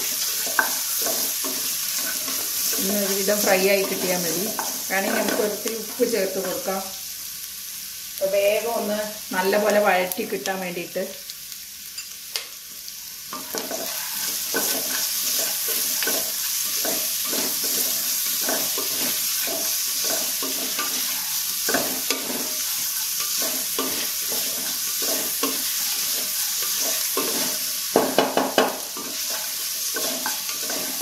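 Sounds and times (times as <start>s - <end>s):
wooden spatula scraping: 0.0s - 6.0s, 13.3s - 27.7s, 29.0s - 31.0s
onions sizzling in oil: 0.0s - 31.0s.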